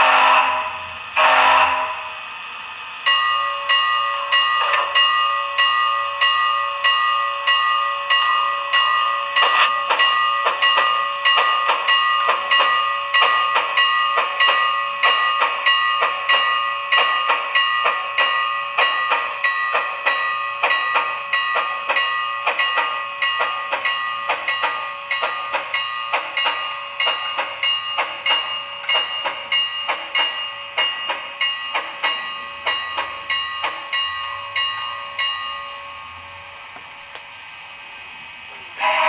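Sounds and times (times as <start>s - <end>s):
loud steady sound: 0.0s - 6.8s
model steam locomotive chuffs: 0.0s - 39.0s.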